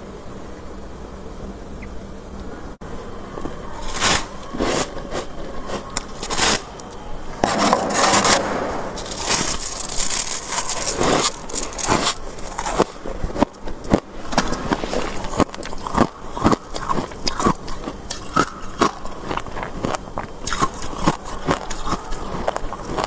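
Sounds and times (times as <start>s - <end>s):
metal spoon scraping frost: 3.7s - 18.7s
frost crunching when bitten: 9.0s - 23.0s.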